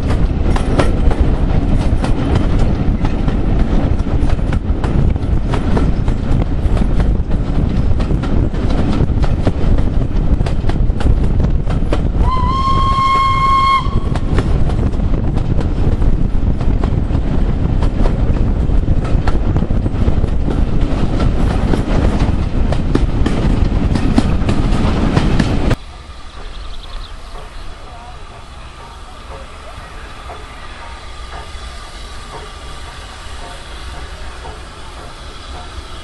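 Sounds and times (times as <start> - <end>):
wheels clicking over rail joints: 0.0 - 12.2, 14.0 - 36.0
steam train running noise: 0.0 - 36.0
steam locomotive whistle: 12.2 - 14.3.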